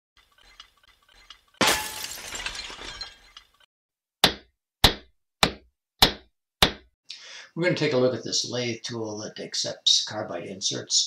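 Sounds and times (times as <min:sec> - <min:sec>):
glass shattering: 0:01.6 - 0:03.4.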